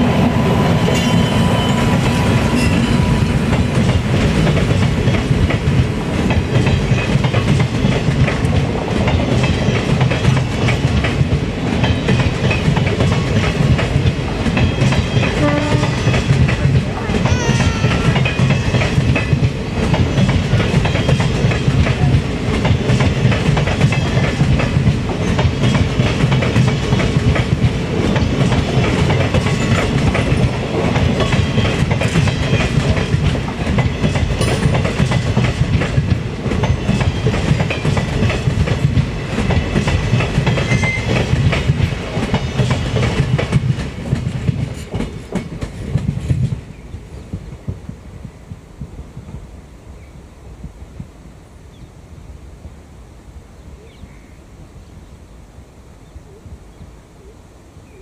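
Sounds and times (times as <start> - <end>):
train rumbling past: 0.0 - 51.1
train wheels clattering over rail joints: 0.9 - 46.9.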